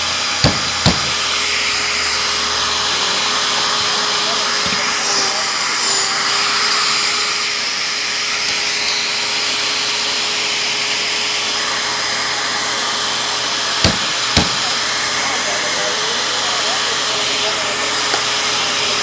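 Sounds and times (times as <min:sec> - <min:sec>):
electric fan running: 0:00.0 - 0:19.0.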